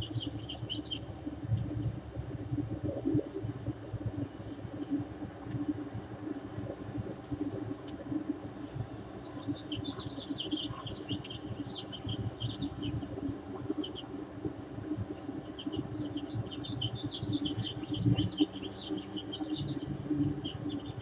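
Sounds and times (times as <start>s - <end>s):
small birds chirping: 0.0s - 1.8s, 8.9s - 21.0s
low background rumble: 0.0s - 21.0s.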